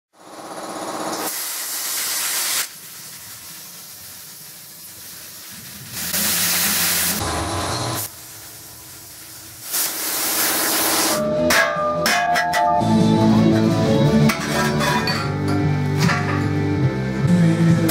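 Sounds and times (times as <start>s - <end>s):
plasma cutter hissing: 1.1s - 11.2s.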